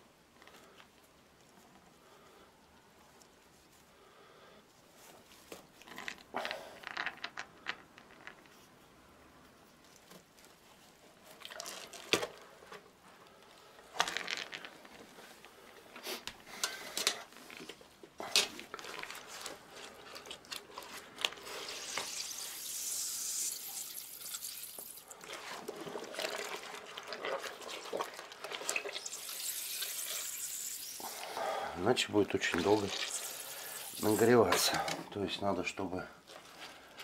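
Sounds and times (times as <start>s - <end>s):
wet squelches of kneaded mash: 10.0s - 12.2s, 17.4s - 22.7s, 24.2s - 30.1s
liquid sloshing and trickling: 23.5s - 31.3s, 32.4s - 34.3s.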